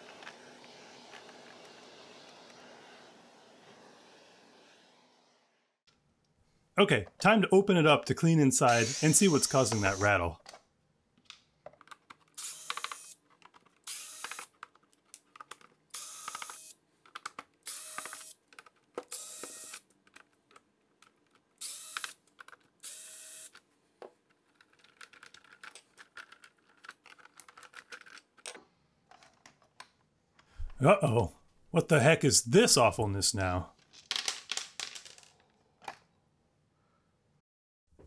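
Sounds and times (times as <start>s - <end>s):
electric screwdriver whirring: 8.7s - 10.1s, 12.4s - 13.2s, 13.8s - 14.5s, 16.0s - 16.7s, 17.6s - 18.4s, 19.1s - 19.8s, 21.6s - 22.2s, 22.8s - 23.6s.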